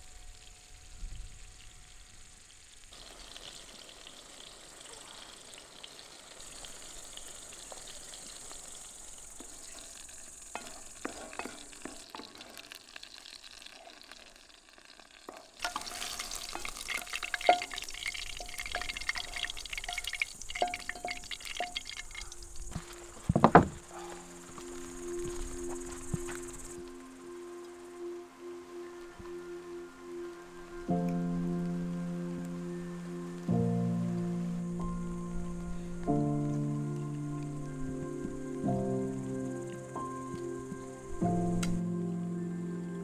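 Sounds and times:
food sizzling on a grill: 0:00.0 - 0:26.9
loud thump: 0:23.3 - 0:23.8.

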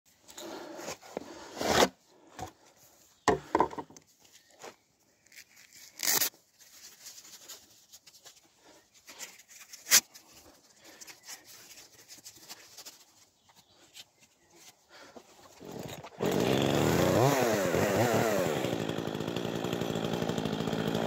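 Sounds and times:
gloves rustling and scraping: 0:00.1 - 0:16.2.

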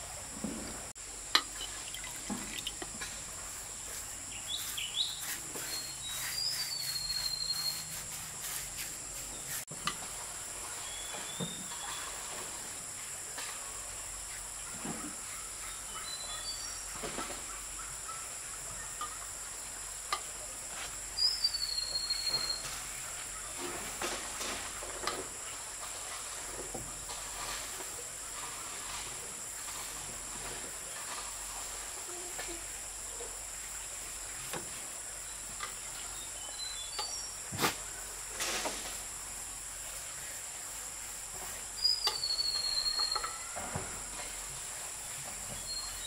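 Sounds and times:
high insect drone: 0:00.0 - 0:46.0
birds chirping: 0:03.9 - 0:08.0.

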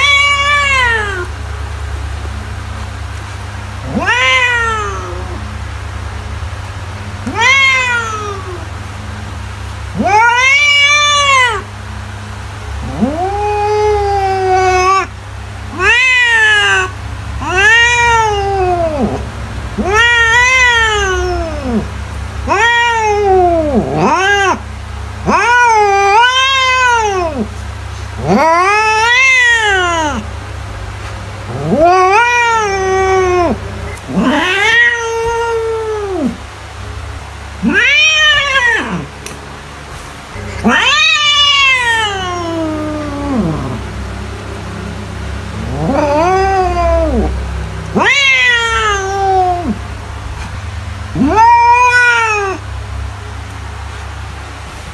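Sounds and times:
cat meowing: 0:00.0 - 0:01.3, 0:03.8 - 0:05.6, 0:07.2 - 0:08.7, 0:09.9 - 0:11.7, 0:12.8 - 0:24.6, 0:25.2 - 0:27.5, 0:28.2 - 0:30.2, 0:31.5 - 0:36.4, 0:37.6 - 0:39.1, 0:40.4 - 0:49.8, 0:50.4 - 0:52.7
steady low hum: 0:00.0 - 0:54.9.

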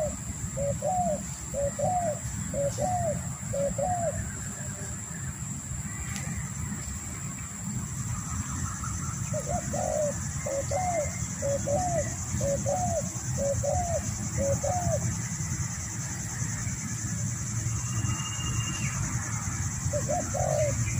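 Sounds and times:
dove cooing: 0:00.0 - 0:04.8, 0:09.1 - 0:15.2, 0:19.8 - 0:20.9.

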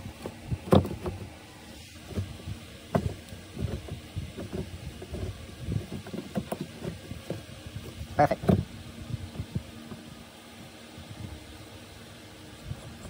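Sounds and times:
gear lever knocks and clicks: 0:00.2 - 0:01.3, 0:02.9 - 0:07.4.

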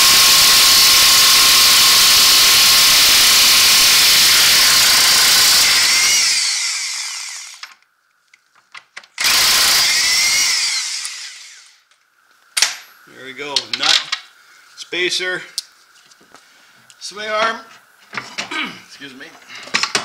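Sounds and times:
impact wrench running: 0:00.0 - 0:07.8, 0:09.2 - 0:11.8.

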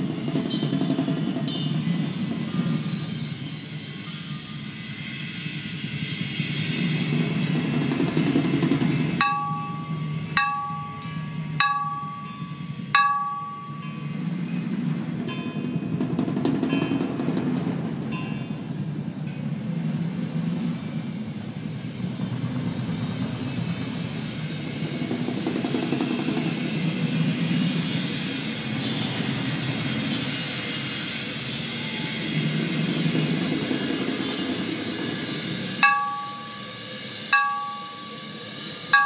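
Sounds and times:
mallet striking ringing metal: 0:09.0 - 0:14.2, 0:35.8 - 0:36.8, 0:37.4 - 0:39.0
high bell-like pings: 0:09.0 - 0:14.3, 0:35.8 - 0:39.0.

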